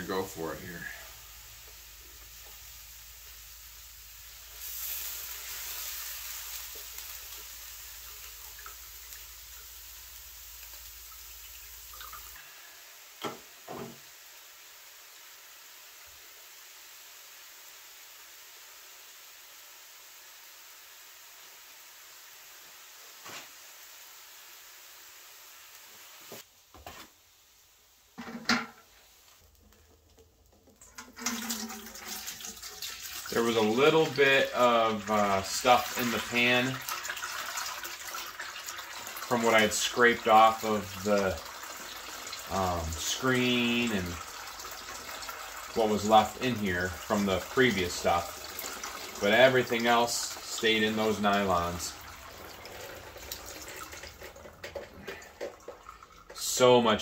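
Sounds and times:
melted wax streaming and dripping: 0.0 - 13.3, 28.8 - 57.0.

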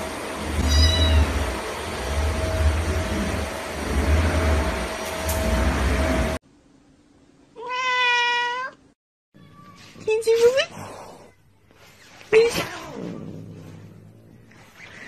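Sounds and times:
cat meowing: 0.6 - 1.3, 7.6 - 8.8.

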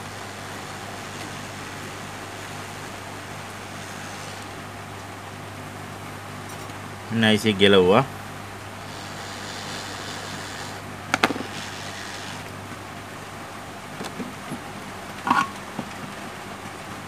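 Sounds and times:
hot air station blowing hiss: 0.0 - 4.8, 8.8 - 12.6.

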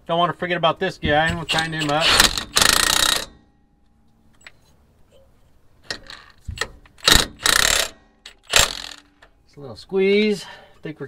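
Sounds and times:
impact wrench driving a nut: 1.1 - 3.5, 5.8 - 9.3.

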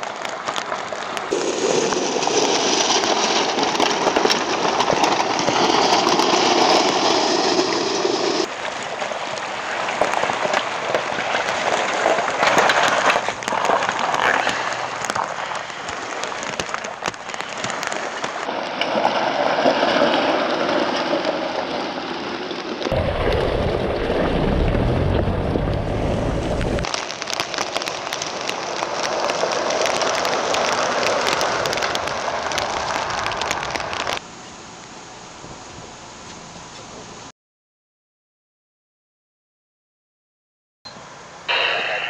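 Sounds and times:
tyres crunching over gravel: 0.0 - 21.6, 22.8 - 34.2
deep rumble: 22.9 - 26.9
steady hiss: 40.9 - 42.0.

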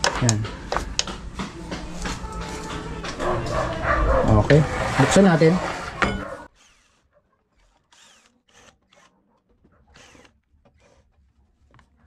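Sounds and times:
cordless drill whirring: 6.5 - 9.2, 9.9 - 11.1.

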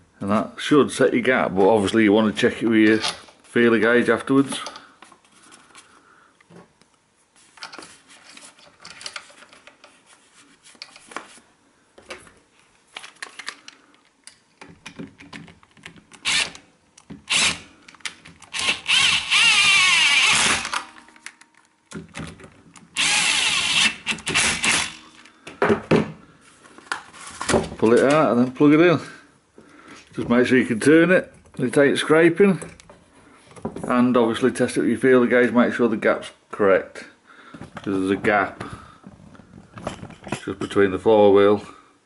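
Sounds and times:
handling clicks and knocks: 13.0 - 16.2
power drill spinning: 16.2 - 16.6, 17.3 - 17.7, 18.4 - 21.1, 22.9 - 25.3.

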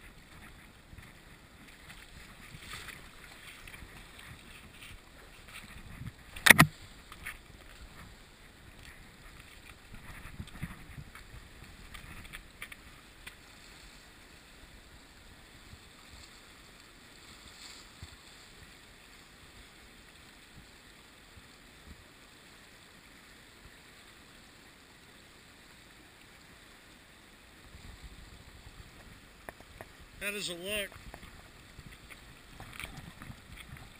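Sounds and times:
river flowing over rocks: 0.0 - 33.9.

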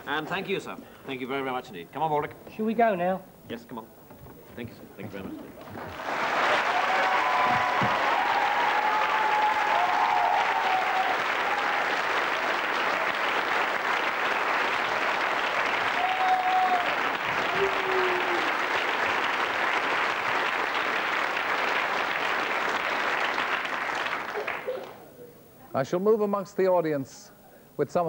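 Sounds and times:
audience applauding: 5.4 - 25.1
audience calls: 5.6 - 25.0.

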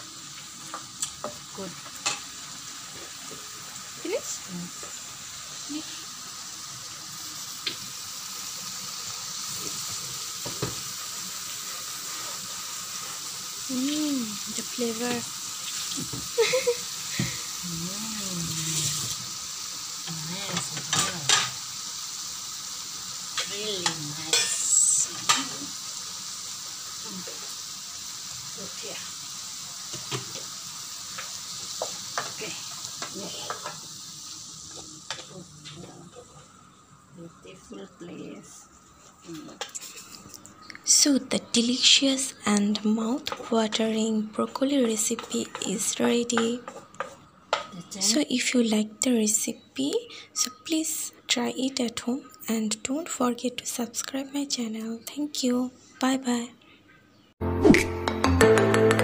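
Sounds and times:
vegetables sizzling in a frying pan: 0.0 - 56.4
wooden spatula scraping a pan: 46.3 - 47.2.

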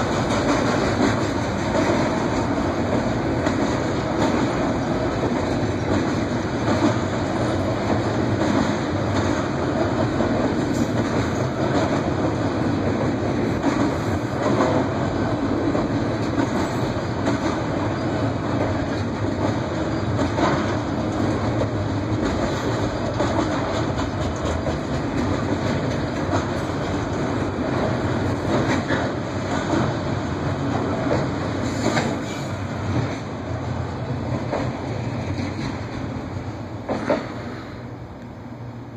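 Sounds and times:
freight train wheels clacking: 0.0 - 38.9
train rumble: 0.0 - 38.9.

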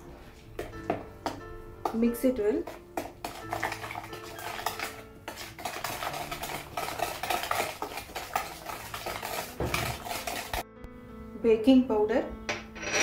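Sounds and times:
whisk beating in plastic bowl: 1.9 - 10.6.

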